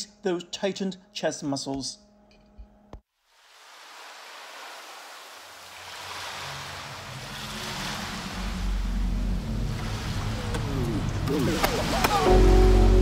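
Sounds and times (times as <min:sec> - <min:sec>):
background music with low tones: 0:00.0 - 0:03.0, 0:06.4 - 0:13.0
rushing surf-like noise: 0:03.5 - 0:13.0.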